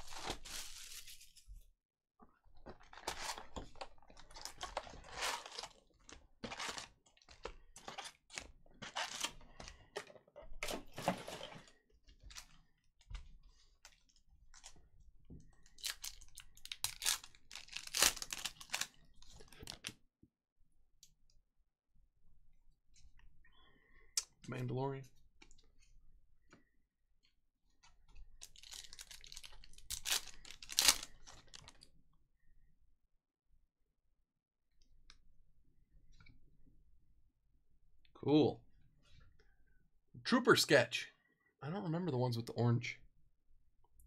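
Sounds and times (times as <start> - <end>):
cardboard and foil wrappers tearing: 0.0 - 1.3, 4.4 - 5.8, 8.9 - 9.4, 15.8 - 19.0, 28.6 - 31.7.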